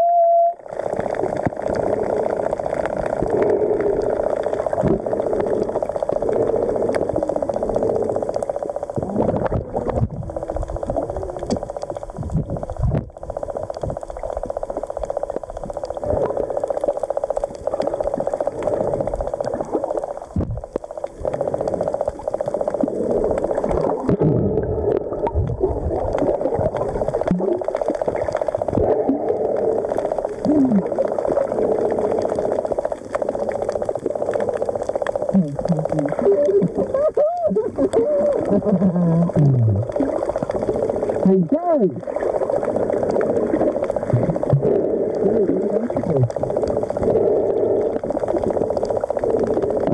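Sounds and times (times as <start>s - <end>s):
bubbling and gurgling: 0.0s - 49.9s
underwater moving water hum: 0.0s - 49.9s
faint crackling: 0.4s - 49.9s.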